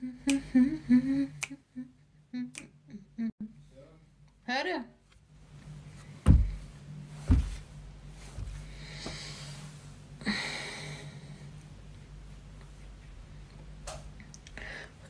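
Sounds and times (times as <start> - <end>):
steady low hum: 0.0 - 15.0
low handling thumps: 6.2 - 7.7.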